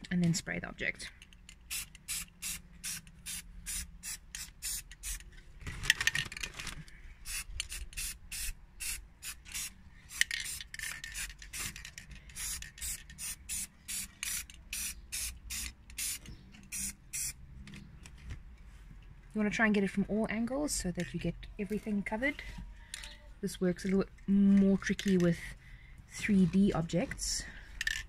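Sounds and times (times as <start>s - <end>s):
aerosol can spraying: 1.7s - 5.2s, 7.2s - 11.6s, 12.4s - 17.4s.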